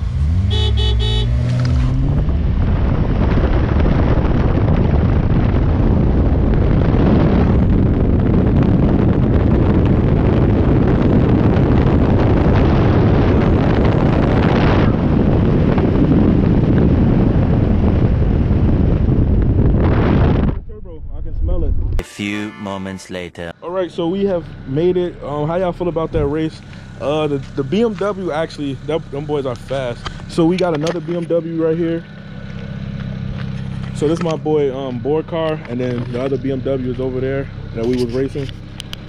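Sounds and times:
car engine accelerating: 0:00.0 - 0:19.2, 0:23.6 - 0:39.0
wind rushing on microphone: 0:01.5 - 0:22.0.

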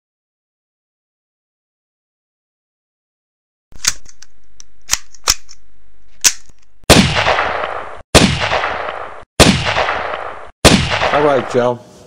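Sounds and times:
sharp clicks: 0:03.8 - 0:05.6
loud gunshots: 0:06.9 - 0:11.7.

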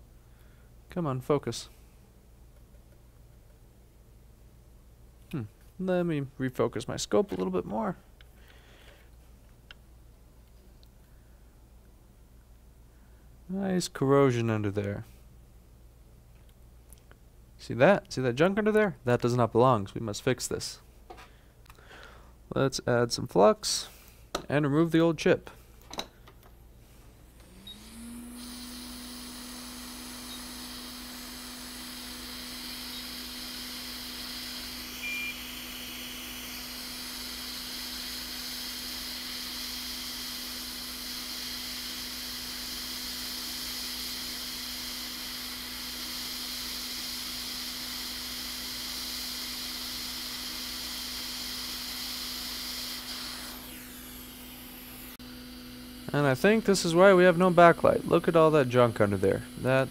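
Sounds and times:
hot air blower hissing: 0:27.4 - 0:59.9.

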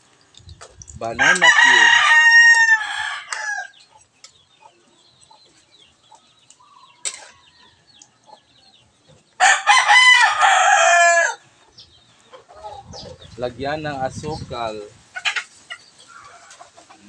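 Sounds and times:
rooster crowing: 0:01.2 - 0:03.8, 0:09.4 - 0:11.4.

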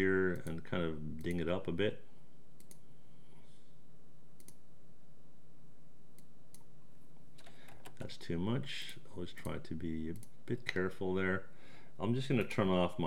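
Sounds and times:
computer control clicks: 0:04.4 - 0:04.6.

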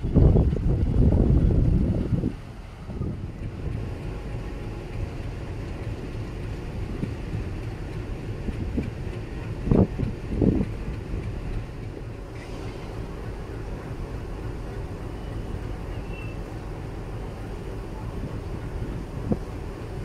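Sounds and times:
heavy wind thumps: 0:00.0 - 0:15.8
wind buffeting microphone: 0:00.0 - 0:20.0.

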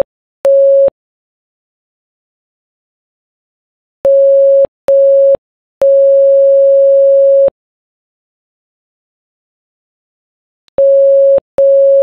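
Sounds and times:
morse code beeps: 0:04.1 - 0:07.5, 0:10.8 - 0:12.0.

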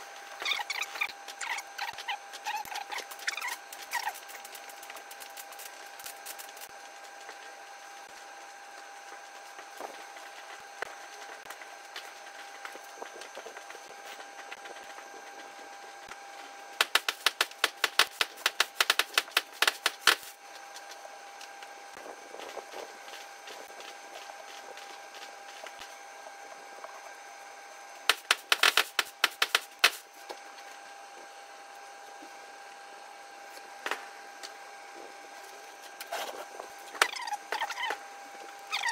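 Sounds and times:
steady hum: 0:00.0 - 0:38.9
cloth rubbing briskly: 0:00.4 - 0:06.7.

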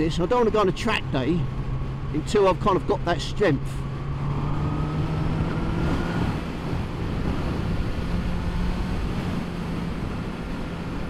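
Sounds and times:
motorcycle engine cruising: 0:00.0 - 0:11.0
wind buffeting microphone: 0:00.0 - 0:11.0.

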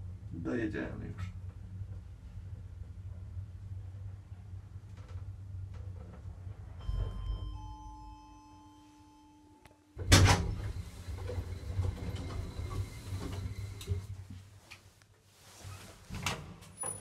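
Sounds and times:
lift running hum: 0:00.0 - 0:09.3, 0:10.0 - 0:14.3
lift doors rattling open: 0:10.0 - 0:14.1.

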